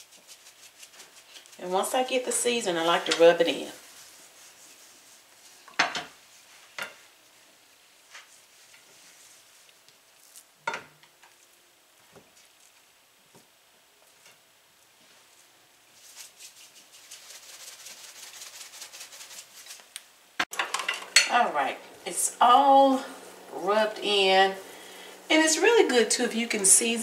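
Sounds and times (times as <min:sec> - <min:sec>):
hand rubbing seasoning into meat: 0:00.0 - 0:05.6, 0:07.9 - 0:10.5, 0:15.0 - 0:20.0, 0:21.5 - 0:27.0.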